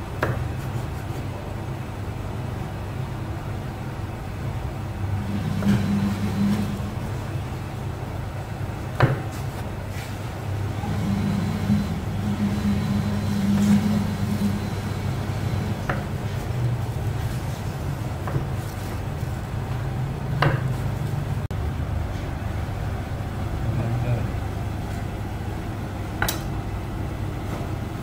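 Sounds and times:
steady low hum: 0.0s - 28.0s
knife knocking on cutting board: 9.0s - 9.3s.

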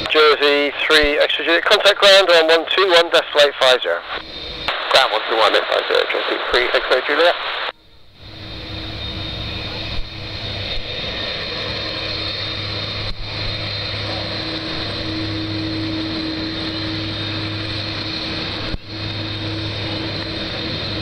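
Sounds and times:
jet engines whining and rumbling: 0.0s - 21.0s.

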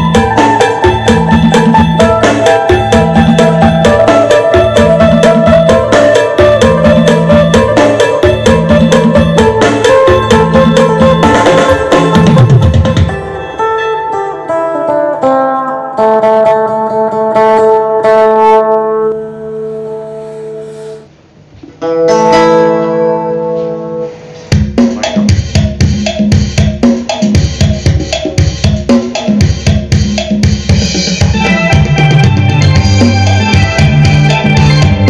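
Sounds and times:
steady drum beat: 0.0s - 13.3s, 24.4s - 35.0s
bass line: 0.0s - 13.6s, 29.4s - 35.0s
lute plucking a melody: 0.0s - 25.2s, 31.3s - 35.0s.

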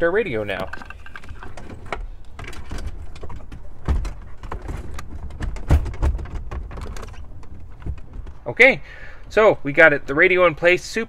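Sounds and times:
car radio rattling in dash: 0.0s - 10.3s
heavy thumps: 1.9s - 8.7s.

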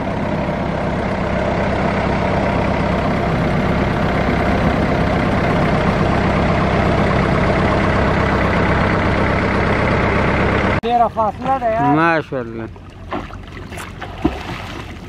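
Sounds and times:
boat engine running: 0.0s - 15.0s
water splashing along hull: 10.9s - 15.0s.

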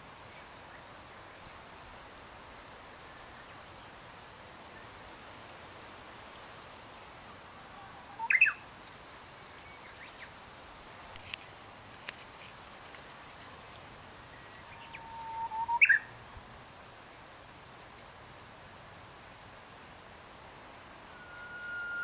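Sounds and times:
faint steady hiss: 0.0s - 22.0s
bird singing whistled song: 8.2s - 8.6s, 14.3s - 16.1s, 21.1s - 22.0s.

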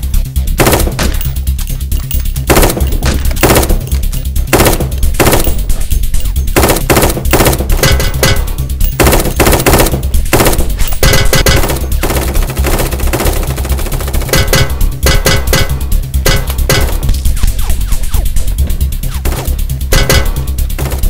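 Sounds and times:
musical backing: 0.0s - 21.0s
automatic gunfire bursts: 0.6s - 1.3s, 2.4s - 5.8s, 6.6s - 15.7s.

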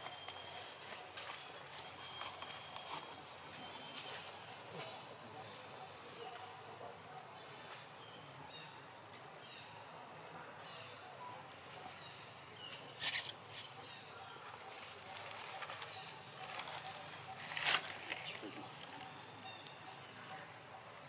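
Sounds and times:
rustles in dry leaves: 0.1s - 5.2s, 14.6s - 20.2s
background hiss: 7.4s - 14.1s
short high chirps: 13.0s - 13.7s.

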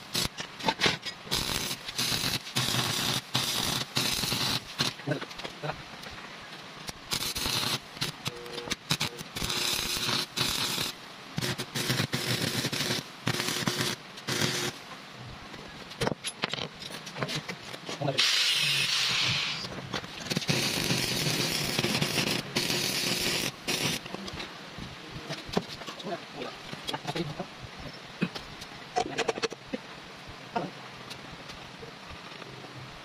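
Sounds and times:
welding arc crackling: 0.0s - 5.8s, 6.8s - 14.8s, 18.0s - 24.4s.

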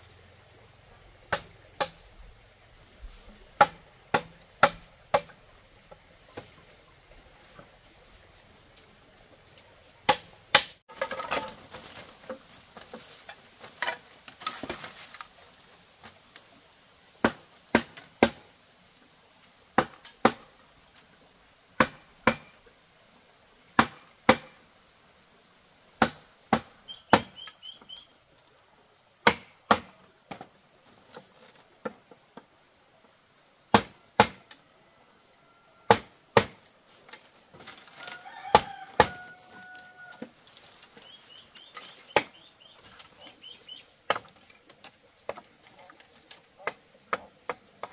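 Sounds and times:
tool chopping bamboo: 1.3s - 2.0s, 3.6s - 6.0s, 10.0s - 11.6s, 17.2s - 18.4s, 19.8s - 20.5s, 21.8s - 22.6s, 23.8s - 24.6s, 26.0s - 27.5s, 29.2s - 30.4s, 33.7s - 34.5s, 35.9s - 36.7s, 38.5s - 39.3s, 41.7s - 43.0s, 44.1s - 44.4s
chicken calling: 26.9s - 28.2s, 38.0s - 40.3s, 40.9s - 43.9s.

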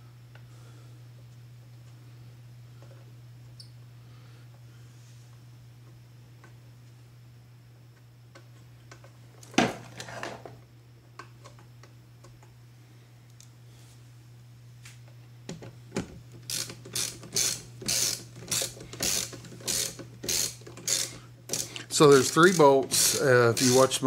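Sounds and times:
socket ratchet clicking: 16.5s - 23.9s.

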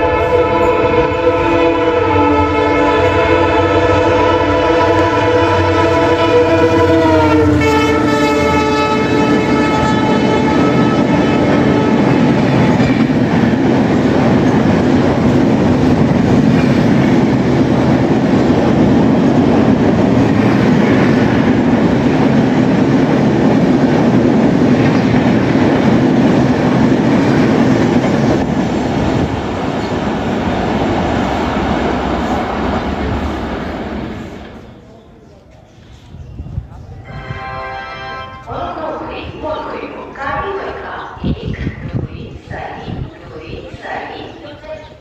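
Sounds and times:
train horn: 0.0s - 13.0s, 37.0s - 38.6s
train rumbling with wheel clatter: 2.9s - 34.8s.

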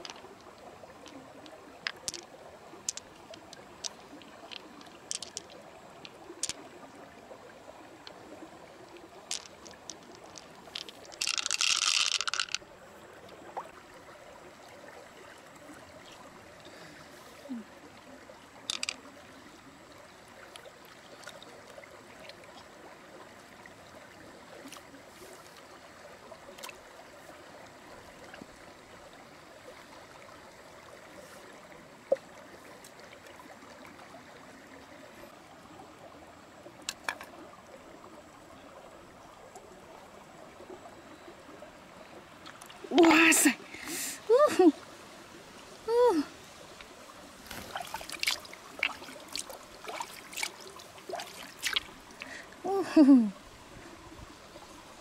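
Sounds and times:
shells clicking and knocking: 0.0s - 2.3s, 2.9s - 5.6s, 9.3s - 12.6s, 18.7s - 19.0s
creek water trickling: 0.0s - 55.0s.

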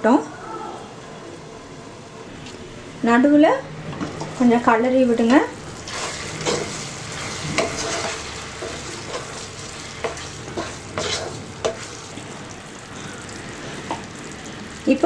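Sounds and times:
fruit sizzling in syrup: 5.6s - 15.0s
wooden spatula scraping a pan: 5.9s - 12.1s.

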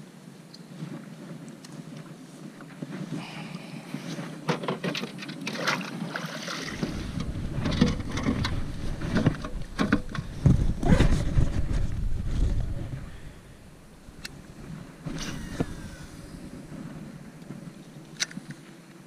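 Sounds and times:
knocks and rustling on kayak: 4.0s - 13.0s.

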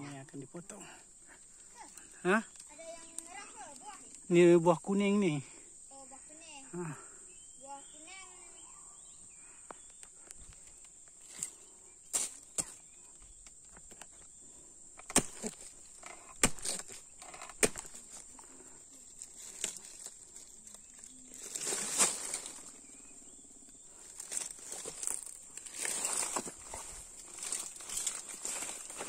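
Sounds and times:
insects droning: 0.0s - 29.0s
leaves rustling: 10.2s - 13.1s, 14.4s - 29.0s
dry leaves snapping and crackling: 15.0s - 29.0s.

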